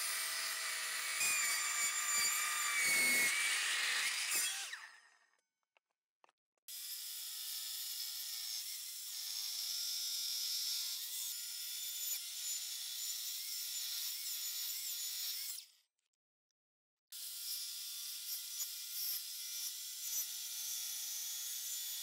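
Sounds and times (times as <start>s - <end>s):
mitre saw cutting wood: 0.0s - 5.3s.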